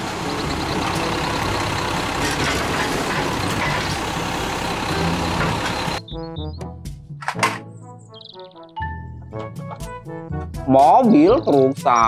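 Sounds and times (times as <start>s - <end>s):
garbage truck diesel engine: 0.0s - 6.0s
hydraulic arm lifting cart: 0.0s - 6.0s.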